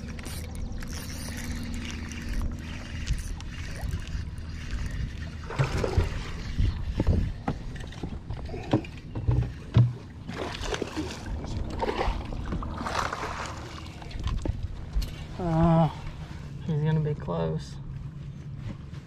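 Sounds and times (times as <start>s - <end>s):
fishing rods being handled: 0.0s - 10.0s
thumps and knocks on boat deck: 7.1s - 10.1s.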